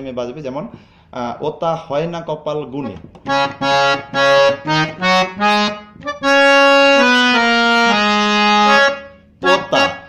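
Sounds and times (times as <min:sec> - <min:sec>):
harmonium melody: 0:03.2 - 0:10.0.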